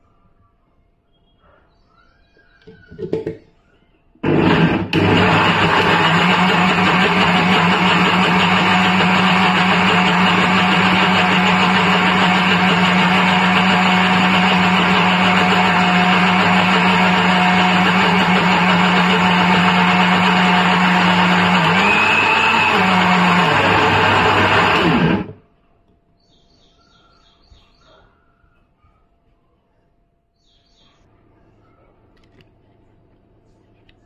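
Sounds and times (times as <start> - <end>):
mixer grinder motor humming: 4.2 - 25.4.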